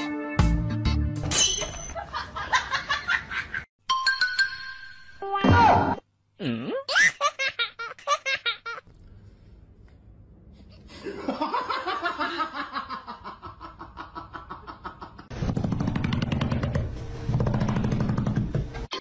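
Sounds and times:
people laughing: 11.0 - 15.3.

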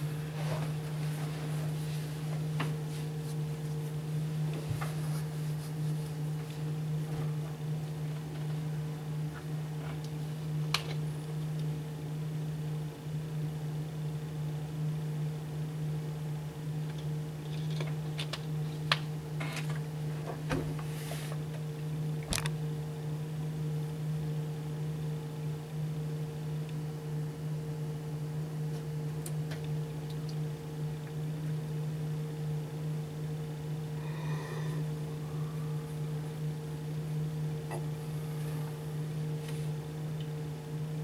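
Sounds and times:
machine humming: 0.0 - 13.6, 30.9 - 41.0.

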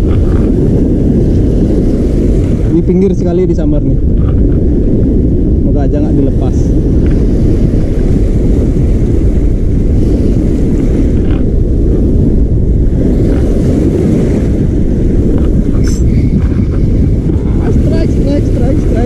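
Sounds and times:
surf washing up beach: 0.0 - 19.0
wind buffeting microphone: 0.0 - 19.0.

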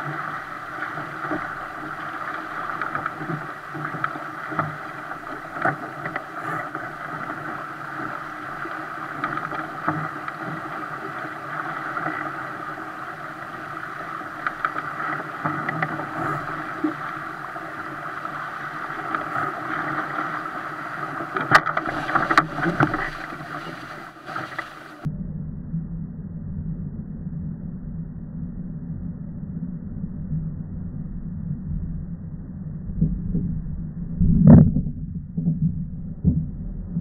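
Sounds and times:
water rushing along a boat hull: 0.0 - 25.1.

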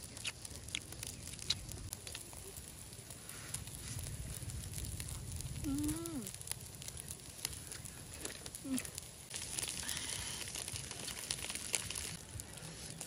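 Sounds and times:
chewing and lip smacks: 0.0 - 2.4
low steady rumble: 1.6 - 11.0.

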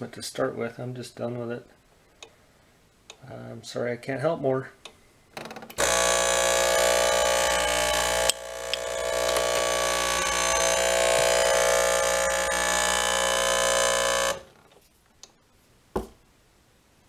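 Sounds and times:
espresso machine pump buzzing: 5.8 - 14.6.

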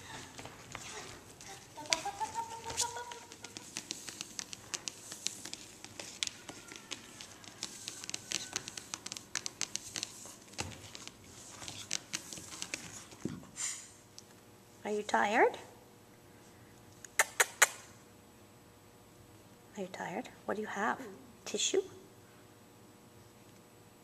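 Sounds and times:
paper tissue rustling: 0.0 - 13.2
puppy claws on vinyl floor: 0.0 - 13.6.

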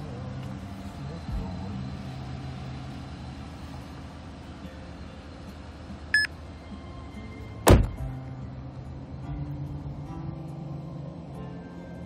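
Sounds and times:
car door shutting: 7.6 - 8.1.

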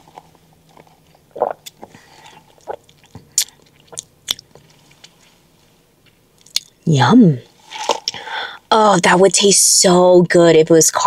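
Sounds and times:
person gulping through a straw: 0.7 - 4.5.

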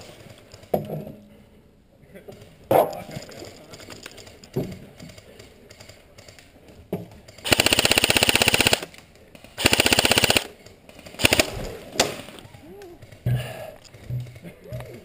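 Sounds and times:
airsoft rifle full-auto bursts: 7.4 - 8.9, 9.6 - 10.6, 11.2 - 11.7.

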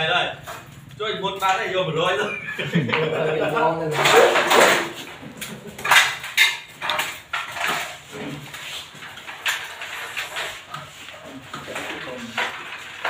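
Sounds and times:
hand tools and cable clattering: 3.8 - 13.0.

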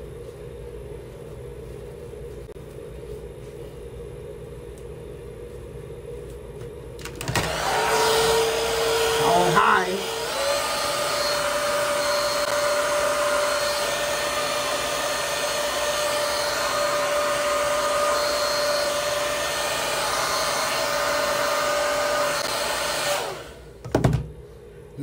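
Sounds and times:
hair dryer running: 7.0 - 23.8.

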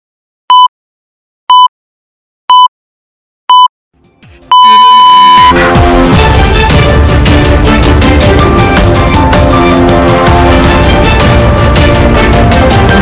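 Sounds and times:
time signal beeps: 0.5 - 0.7, 4.5 - 5.6.

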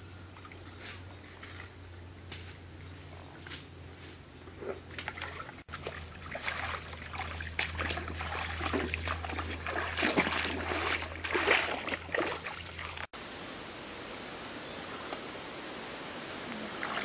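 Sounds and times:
feet wading through water: 4.7 - 13.1, 16.6 - 17.0.

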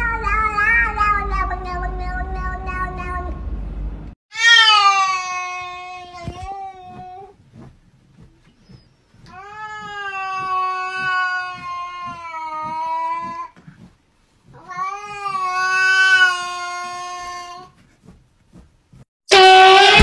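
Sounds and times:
cat yowling: 4.3 - 7.3.

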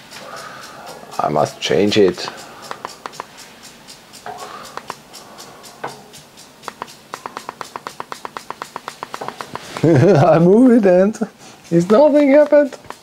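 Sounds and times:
remote control button clicks: 6.7 - 9.9.

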